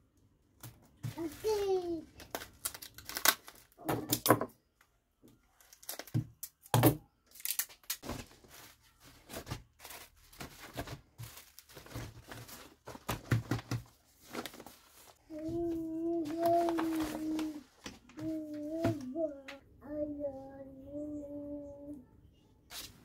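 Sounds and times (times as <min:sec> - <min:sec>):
bubble wrap crinkling: 0:01.0 - 0:03.9, 0:05.4 - 0:18.5.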